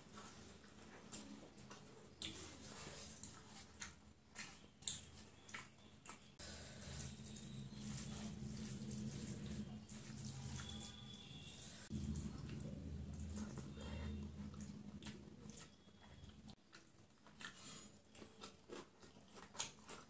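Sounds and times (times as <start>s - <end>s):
hand squishing wet rice: 2.1s - 16.2s
low steady hum: 5.4s - 16.6s.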